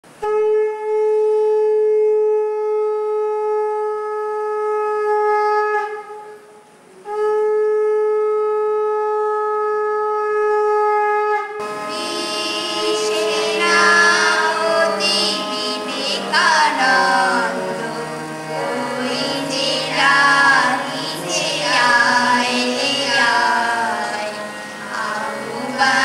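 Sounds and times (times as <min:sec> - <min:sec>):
harmonium music: 0:11.6 - 0:26.0.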